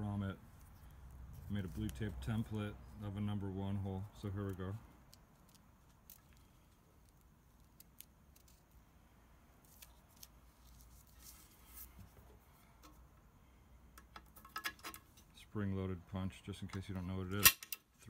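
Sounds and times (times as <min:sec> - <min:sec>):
hands handling tape: 0:00.5 - 0:02.6, 0:04.3 - 0:08.8, 0:09.5 - 0:13.3.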